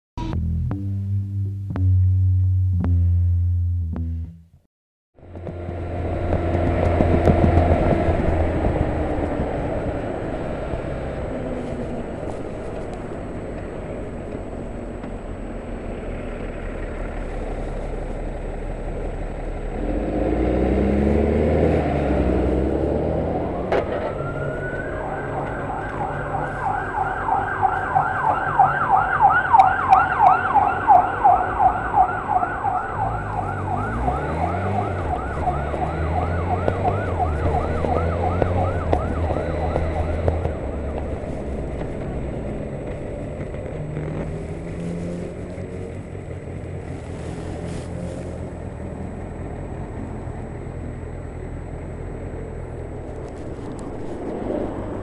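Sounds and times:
siren rising wail: 0:21.2 - 0:42.8
siren yelping: 0:23.2 - 0:41.1
motorcycle engine revving: 0:33.0 - 0:46.1.

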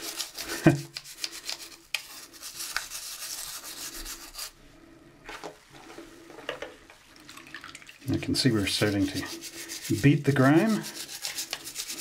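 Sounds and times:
toothbrush scrubbing plastic: 0:00.0 - 0:04.6, 0:08.2 - 0:12.0.

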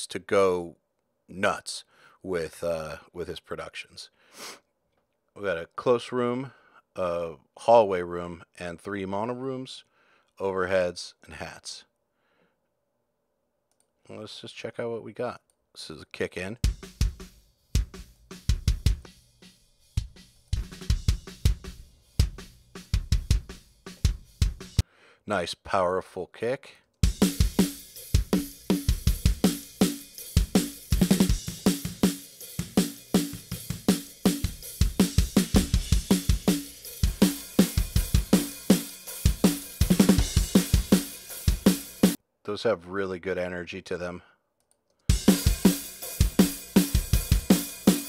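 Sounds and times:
drum kit leaking: 0:16.6 - 0:24.8, 0:27.0 - 0:42.2, 0:45.1 - 0:48.0
kick drum in rock beat: 0:16.6 - 0:24.8, 0:27.0 - 0:42.2, 0:45.1 - 0:48.0.

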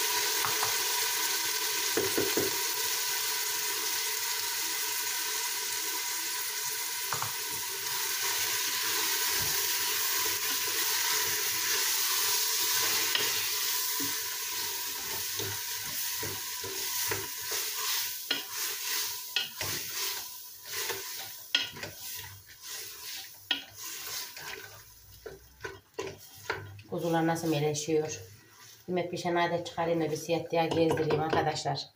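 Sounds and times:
onions sizzling in oil: 0:00.0 - 0:30.8
wooden spoon scraping pot: 0:14.9 - 0:29.0.

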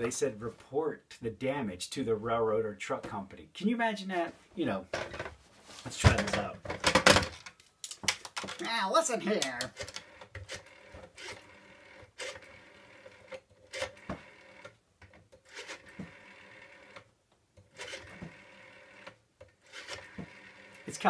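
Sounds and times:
rotary phone dial whirring: 0:09.4 - 0:20.9.

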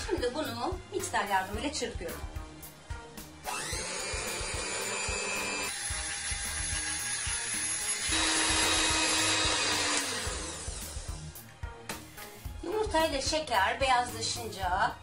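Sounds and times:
electric hand mixer whirring: 0:03.4 - 0:11.3.

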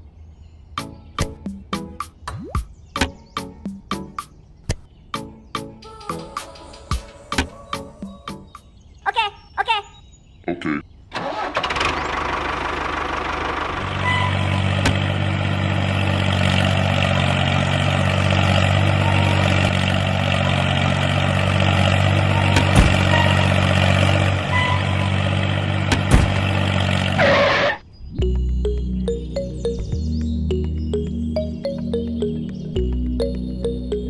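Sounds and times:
tractor engine chugging: 0:11.2 - 0:27.6.

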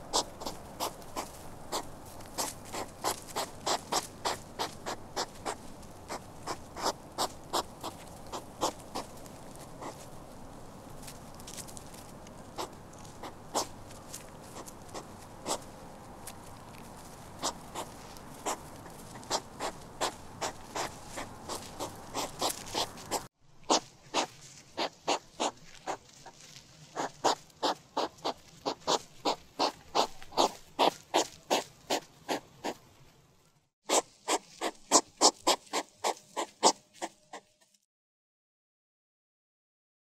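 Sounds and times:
hedgehog crying: 0:00.1 - 0:09.2, 0:12.5 - 0:13.8, 0:14.5 - 0:15.7, 0:17.4 - 0:26.1, 0:26.9 - 0:32.8, 0:33.9 - 0:37.5.

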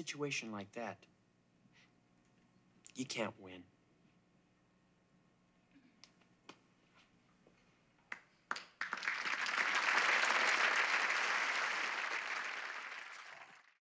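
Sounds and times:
audience applauding: 0:08.5 - 0:13.8.

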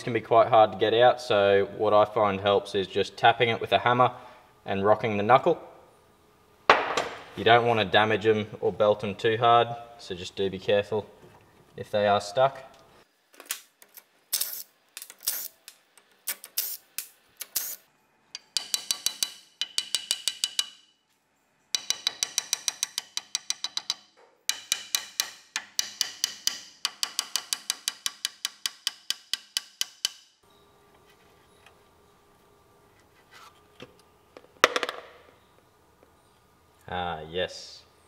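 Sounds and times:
hammer tapping on metal: 0:18.4 - 0:20.8, 0:21.8 - 0:30.3.

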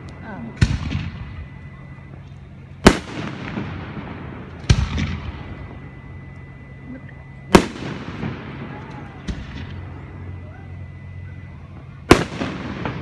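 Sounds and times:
fireworks bangs with rolling echo: 0:00.4 - 0:02.2, 0:02.8 - 0:06.0, 0:07.5 - 0:10.0, 0:11.7 - 0:13.0.

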